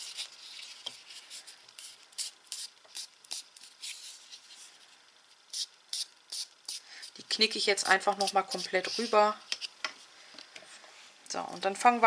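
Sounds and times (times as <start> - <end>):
paper rubbing and rustling: 0.0 - 4.9.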